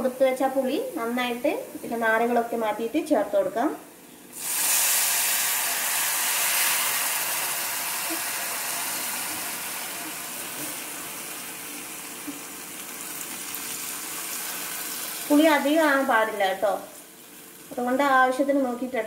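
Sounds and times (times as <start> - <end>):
liquid sizzling in hot oil: 4.3 - 18.5.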